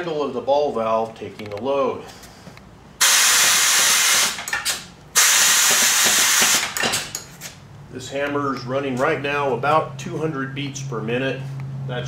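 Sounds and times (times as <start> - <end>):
compressed air hissing: 3.0 - 4.5, 5.2 - 6.8
power hammer clicks and knocks: 5.7 - 7.3.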